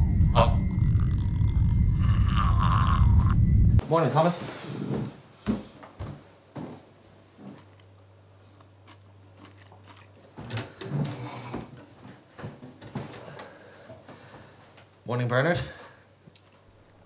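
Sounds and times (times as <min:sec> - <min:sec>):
low steady hum: 0:00.0 - 0:04.2.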